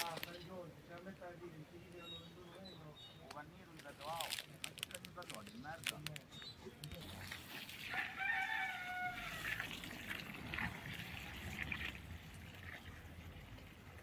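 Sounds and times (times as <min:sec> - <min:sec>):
rooster crowing: 0:07.9 - 0:09.7.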